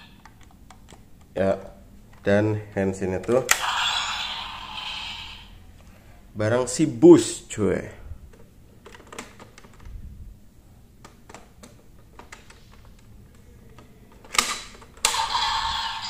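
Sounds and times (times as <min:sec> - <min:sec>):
toy electronic sound effects: 0:03.5 - 0:05.5, 0:15.0 - 0:16.0
plastic snap: 0:13.8 - 0:15.2.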